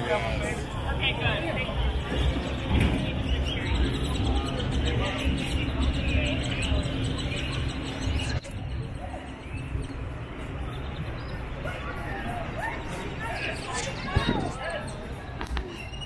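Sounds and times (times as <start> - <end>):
murmur of voices: 0.0 - 16.0
birds chirping: 0.2 - 16.0.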